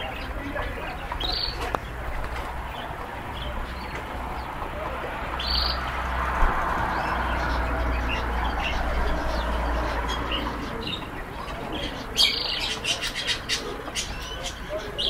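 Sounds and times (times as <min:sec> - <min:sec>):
canaries chirping: 0:00.0 - 0:15.0.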